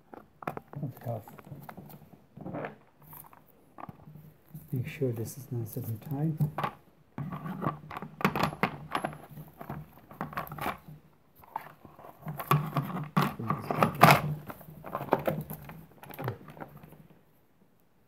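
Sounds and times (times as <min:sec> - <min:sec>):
plastic parts clicking and knocking: 0:00.0 - 0:04.2, 0:06.2 - 0:17.2.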